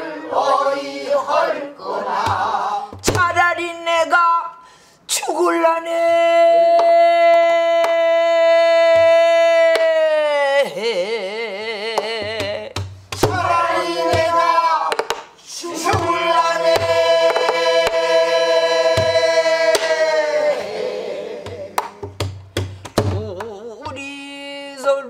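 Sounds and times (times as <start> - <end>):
person singing lament with vibrato: 5.2 - 12.7, 23.1 - 24.4.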